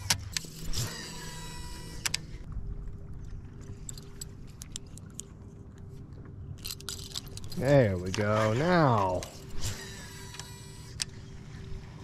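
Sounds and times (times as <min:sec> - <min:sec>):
small metallic clicks: 0:03.6 - 0:05.4, 0:06.6 - 0:11.2.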